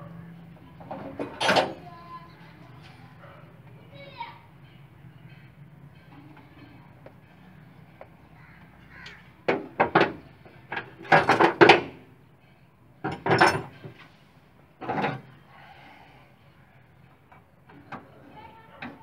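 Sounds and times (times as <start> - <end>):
knocks and rattles on engine: 9.5 - 12.0.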